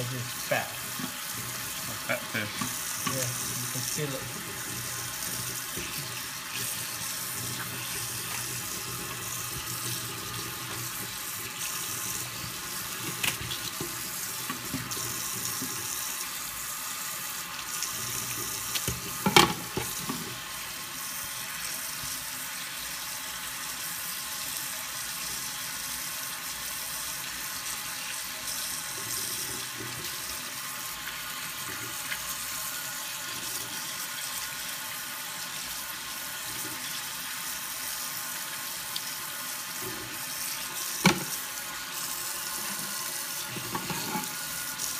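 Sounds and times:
tap running into sink: 4.4 - 15.9, 18.2 - 20.4, 40.8 - 41.5, 42.7 - 44.4.

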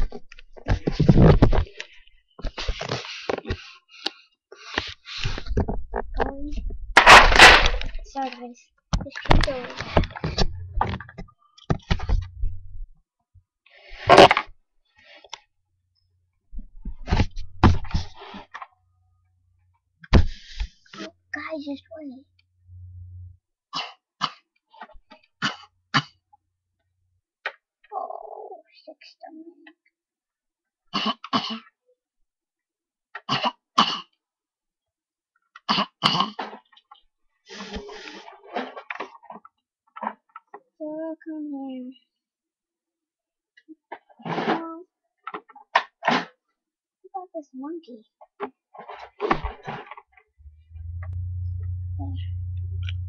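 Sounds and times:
child coughing: 31.0 - 31.8, 33.2 - 34.1, 35.7 - 36.4.

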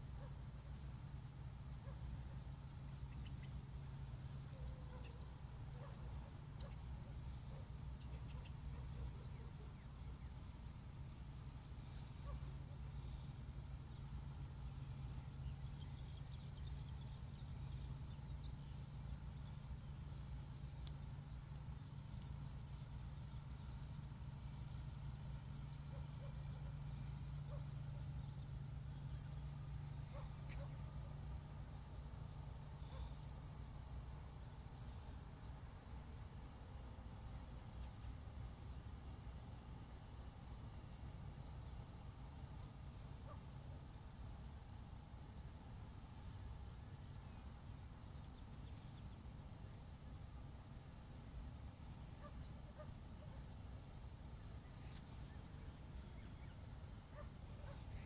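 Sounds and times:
faint chirps: 0.0 - 58.0
insects droning: 0.0 - 58.0
low steady hum: 0.0 - 58.0.

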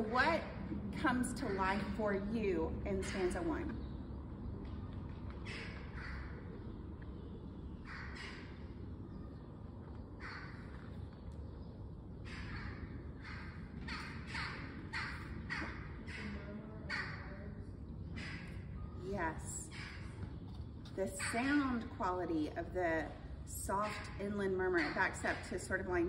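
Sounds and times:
crows cawing: 5.4 - 6.8, 7.8 - 8.8, 10.2 - 11.0, 12.2 - 17.5.

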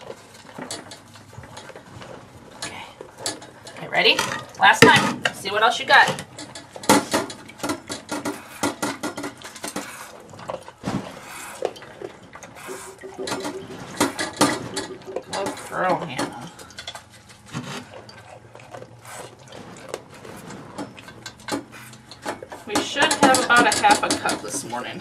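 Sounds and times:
milk squirting into metal pail: 7.4 - 23.6
metallic clinks on pail: 20.7 - 25.0.

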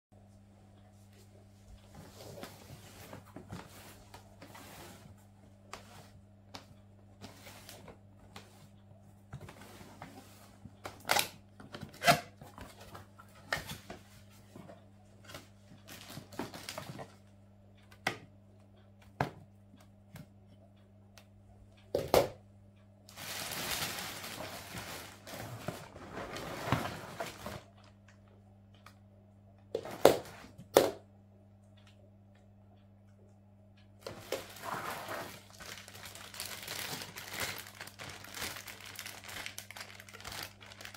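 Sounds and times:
plastic wrapping rustling: 15.9 - 17.2, 23.1 - 27.8, 34.0 - 40.9.

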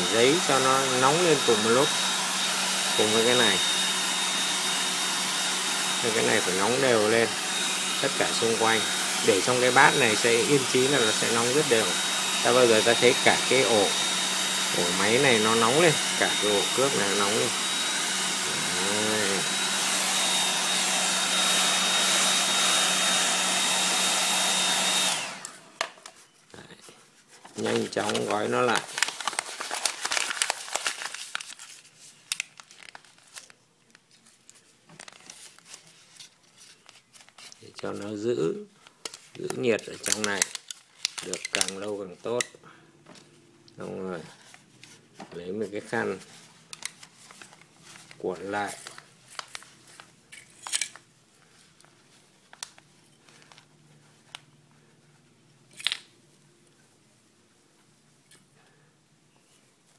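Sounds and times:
paper crinkling: 25.4 - 42.3, 44.2 - 56.1
cloth towel rustling and rubbing: 44.1 - 50.2, 51.4 - 55.4.

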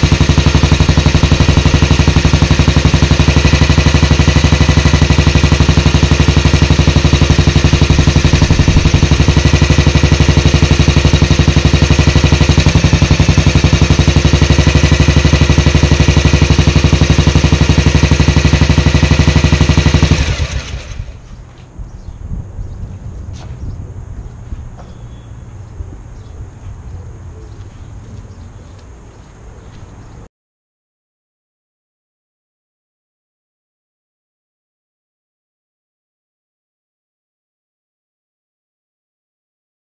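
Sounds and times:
motorcycle engine idling: 0.0 - 30.3.

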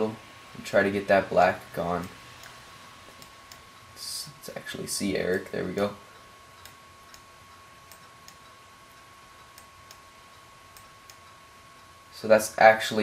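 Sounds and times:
high constant whine: 0.0 - 13.0
steady low hiss: 0.0 - 13.0
mouse clicks: 6.6 - 7.3, 7.9 - 11.4.

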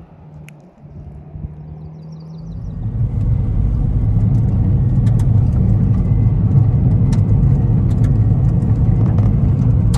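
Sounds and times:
car tyres and engine rumble: 0.0 - 9.9
gravel ticks: 3.1 - 9.9.

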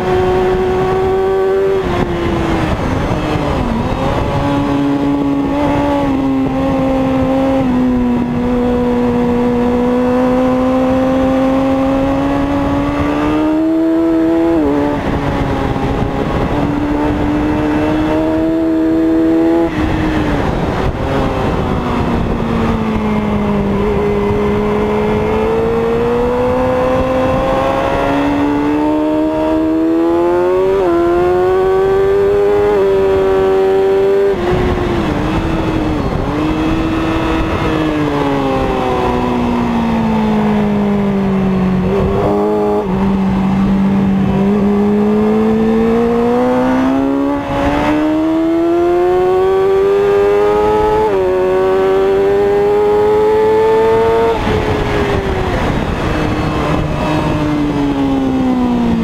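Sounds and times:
racing motorcycle engine: 0.0 - 59.0
wind noise: 0.0 - 59.0.

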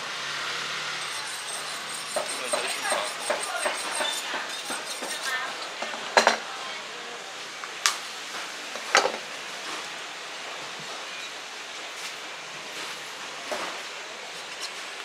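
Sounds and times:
faint voices: 1.0 - 7.8.

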